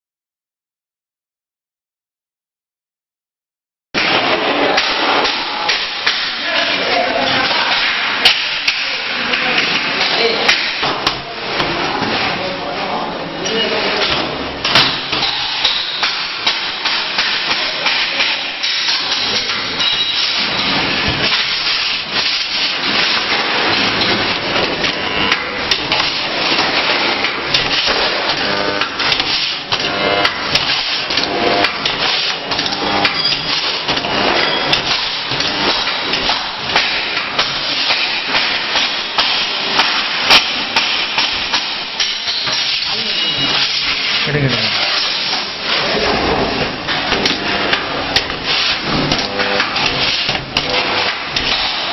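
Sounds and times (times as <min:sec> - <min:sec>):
spot welding din: 0:13.4 - 0:51.9.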